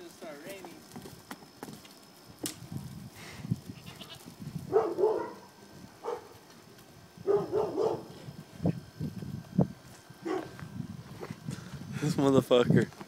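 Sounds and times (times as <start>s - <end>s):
goat bleating: 3.8s - 4.3s.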